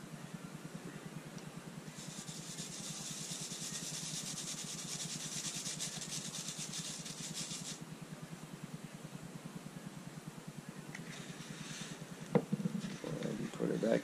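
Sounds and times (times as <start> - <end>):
powder sifted through mesh sieve: 1.8 - 7.8, 11.1 - 12.2.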